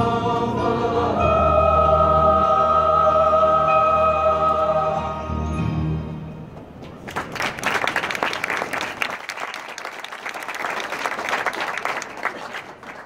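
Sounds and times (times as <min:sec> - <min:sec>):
choir singing: 0:00.0 - 0:06.0
audience clapping: 0:07.0 - 0:13.0.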